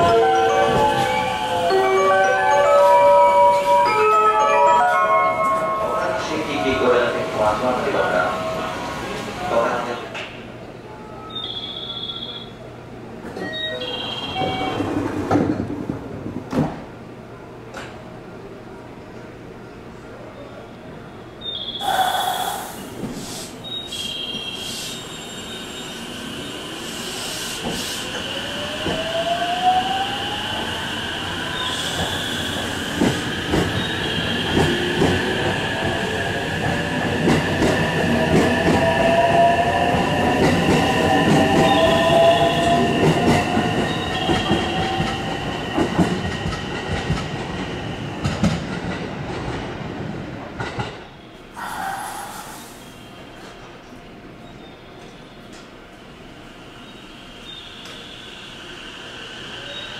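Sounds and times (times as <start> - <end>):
steady high tone: 0.0 - 9.0.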